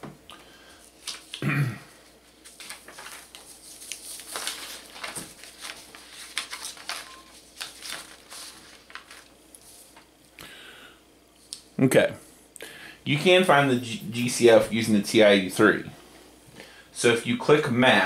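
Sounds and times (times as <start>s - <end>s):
paper rustling and sliding: 0.8s - 1.4s, 2.1s - 10.1s.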